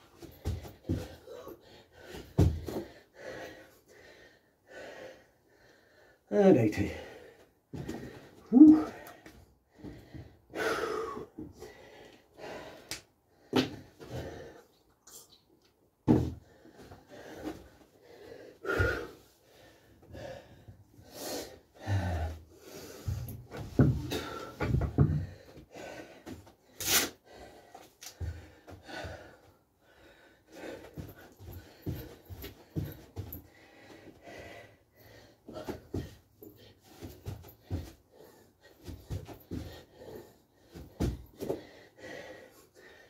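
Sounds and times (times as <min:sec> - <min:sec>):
man breathing heavily and wheezing: 0:00.0 - 0:14.9, 0:16.1 - 0:43.0.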